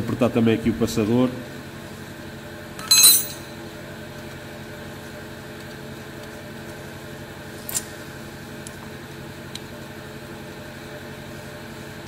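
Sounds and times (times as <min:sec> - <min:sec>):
steady mechanical hum: 0:00.0 - 0:12.0
metal clink: 0:02.8 - 0:03.6.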